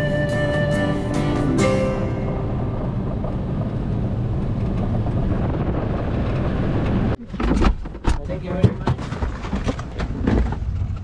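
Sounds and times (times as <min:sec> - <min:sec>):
music track: 0:00.0 - 0:03.6.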